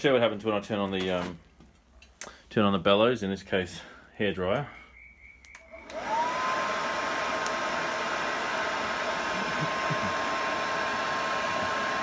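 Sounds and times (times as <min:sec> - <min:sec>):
hairdryer motor whine: 0:05.6 - 0:12.0.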